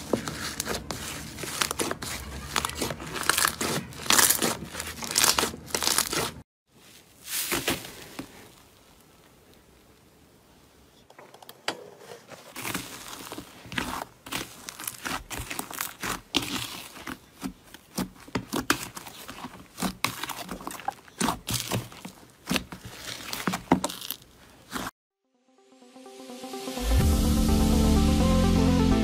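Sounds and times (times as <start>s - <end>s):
slime crackling and popping: 0.3s - 6.4s, 12.6s - 24.8s.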